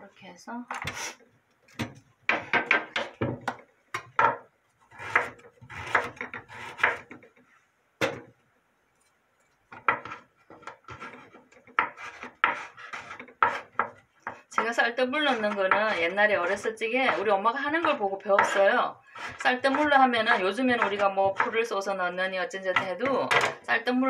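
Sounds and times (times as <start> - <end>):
knife chopping on wooden board: 1.8 - 7.2, 9.8 - 14.7, 15.3 - 21.6.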